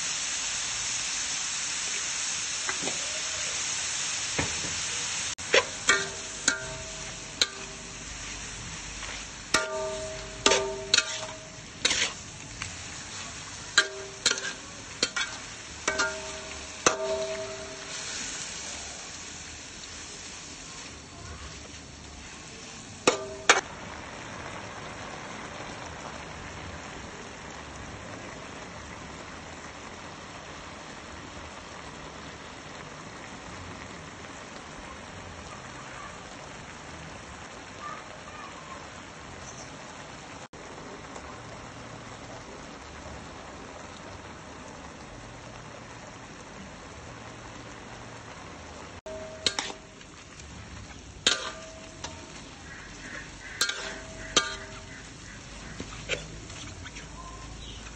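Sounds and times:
food sizzling in a wok: 0:00.0 - 0:57.9
metal spatula scraping a pan: 0:05.4 - 0:18.6, 0:49.1 - 0:57.2
spatula clanking on wok: 0:05.4 - 0:18.6, 0:23.0 - 0:23.6, 0:49.1 - 0:57.1.

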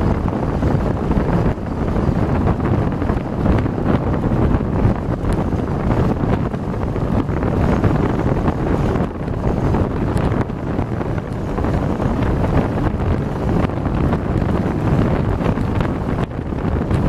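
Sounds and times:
vehicle rumble on road: 0:00.0 - 0:17.0
wind buffeting microphone: 0:00.0 - 0:17.0.

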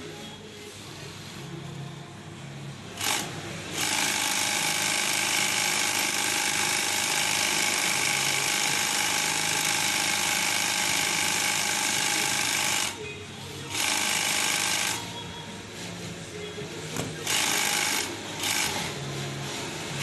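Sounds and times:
sewing machine clatter: 0:03.0 - 0:13.0, 0:13.7 - 0:15.0, 0:17.2 - 0:19.0.

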